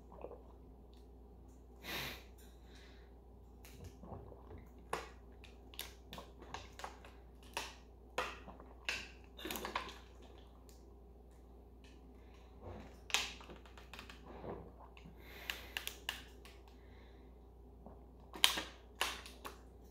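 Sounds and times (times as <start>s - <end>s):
person gulping water: 0.0s - 1.1s, 3.7s - 7.0s, 8.2s - 10.6s, 12.6s - 15.7s.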